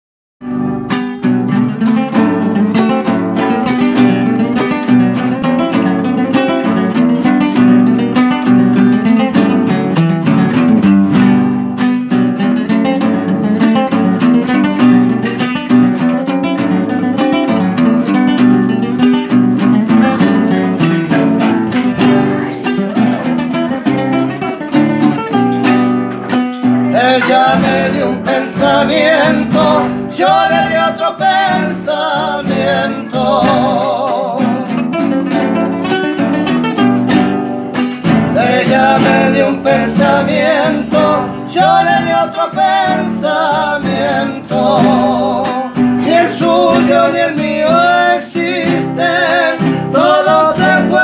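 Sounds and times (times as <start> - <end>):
acoustic guitars strummed: 0.4 - 51.0
man singing: 26.8 - 35.0, 38.2 - 51.0.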